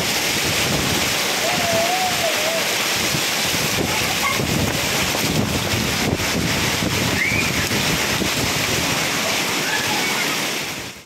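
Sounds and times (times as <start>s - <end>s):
hail and rain on concrete: 0.0s - 11.0s
wind gusting over microphone: 0.0s - 11.0s.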